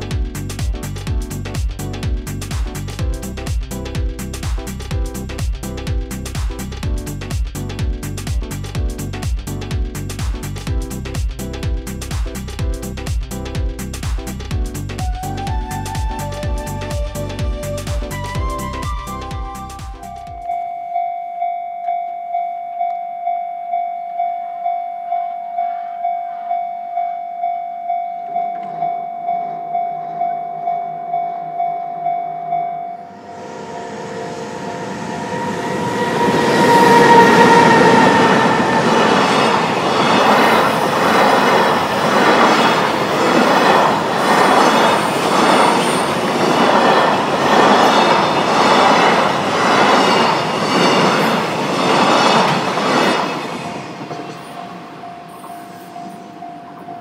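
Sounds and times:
level crossing warning bell: 20.4 - 39.8, 54.2 - 57.0
train wheels clattering on rails: 35.2 - 57.0.

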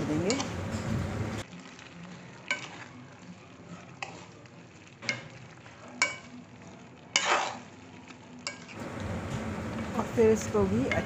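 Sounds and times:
oil sizzling faintly: 0.0 - 11.0
spoon scraping pan: 0.1 - 1.1, 2.4 - 4.4, 7.1 - 7.8
spoon knocking metal pan: 10.8 - 11.0.

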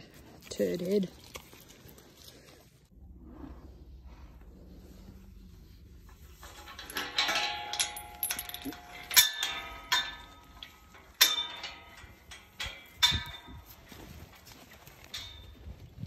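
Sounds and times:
chain rattling: 5.9 - 15.7
metal gate clanking: 6.3 - 13.8.

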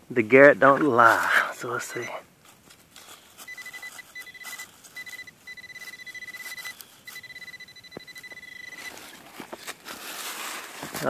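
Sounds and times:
metal detector alert tone: 1.8 - 2.2, 3.4 - 9.2
scraping through leaf litter and soil: 2.4 - 5.1, 8.7 - 11.0.

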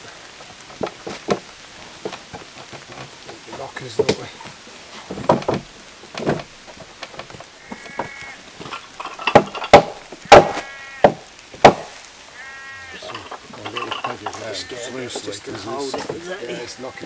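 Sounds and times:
wooden knocks of timber beams: 0.0 - 12.0, 15.0 - 16.3
sheep bleating: 7.6 - 8.5, 10.3 - 11.1, 12.3 - 13.4, 14.1 - 17.0.

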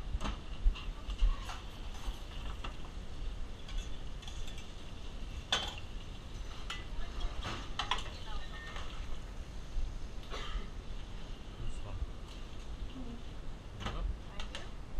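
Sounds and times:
low steady rumble: 0.0 - 14.9
cookware and utensils clinking: 3.6 - 9.0.

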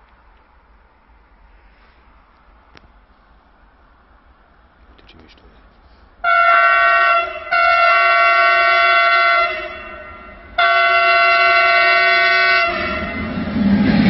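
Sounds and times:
locomotive passing rush: 3.2 - 14.0
locomotive horn blasts: 6.2 - 13.4.

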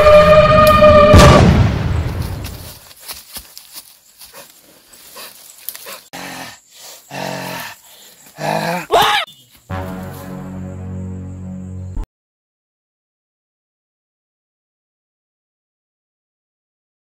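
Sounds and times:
monster-like growling: 6.1 - 7.8, 8.4 - 9.0.

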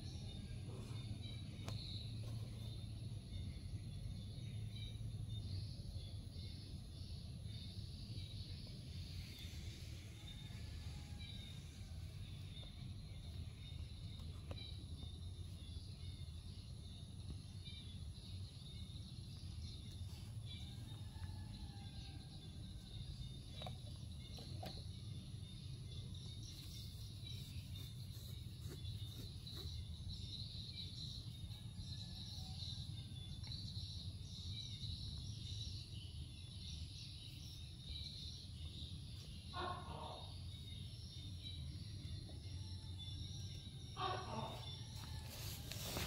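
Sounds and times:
faint bird chirps: 0.0 - 46.0.

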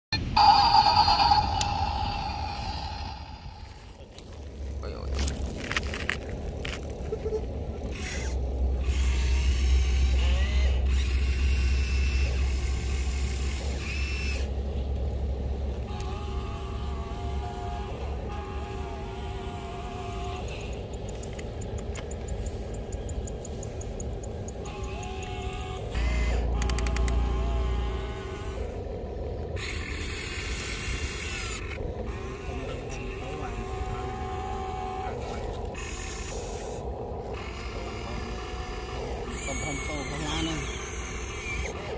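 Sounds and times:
motor whines rising and falling: 0.2 - 4.4, 7.9 - 14.9, 24.4 - 41.9
toy excavator rumbling: 0.2 - 14.7, 15.8 - 23.4, 24.1 - 41.9
electric motors whirring: 0.4 - 41.9.

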